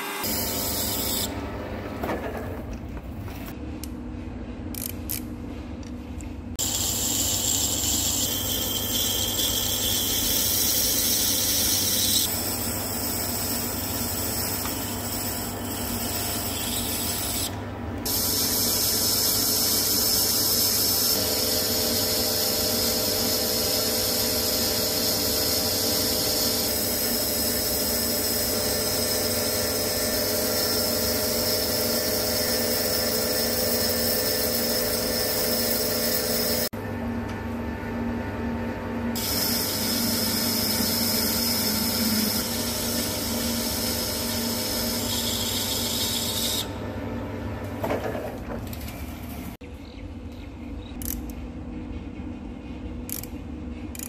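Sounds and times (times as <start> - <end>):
lathe tool cutting steel: 6.6 - 17.5, 18.1 - 36.7, 39.2 - 46.7
lathe machine hum: 18.7 - 36.7, 37.9 - 47.7.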